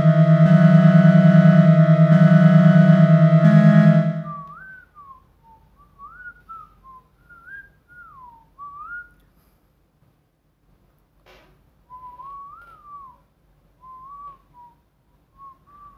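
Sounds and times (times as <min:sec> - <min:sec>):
music drone: 0:00.0 - 0:04.6
person whistling a tune: 0:04.2 - 0:09.2, 0:11.9 - 0:14.8, 0:15.4 - 0:15.9.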